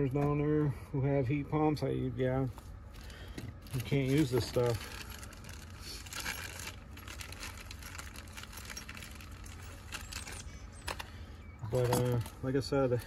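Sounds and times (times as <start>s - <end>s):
small tools clinking: 7.3s - 12.5s.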